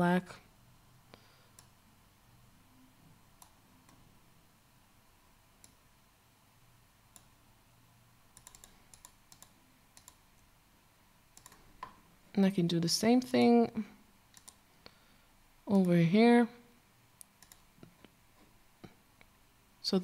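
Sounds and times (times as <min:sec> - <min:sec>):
computer mouse and keyboard clicks: 0:08.4 - 0:10.2, 0:11.4 - 0:12.0, 0:14.3 - 0:14.6, 0:17.2 - 0:18.1.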